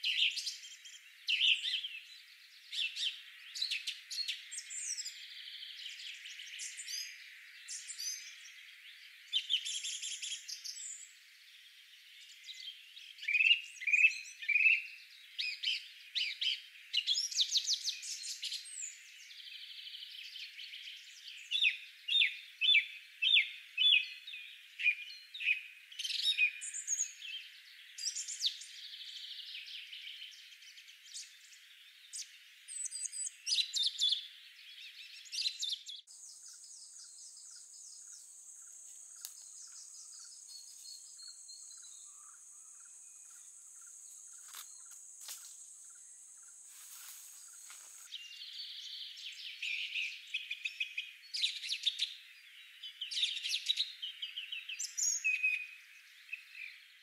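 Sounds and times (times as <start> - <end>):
birds chirping: 0.0 - 57.0
high insect buzz: 37.9 - 48.1.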